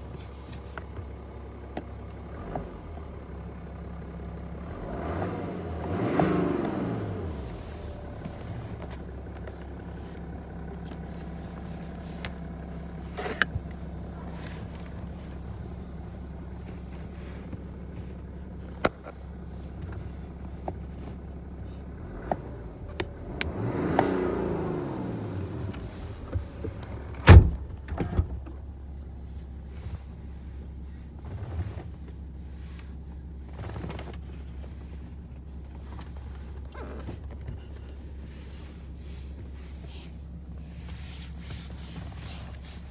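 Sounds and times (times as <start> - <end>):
car engine hum: 0.0 - 42.9.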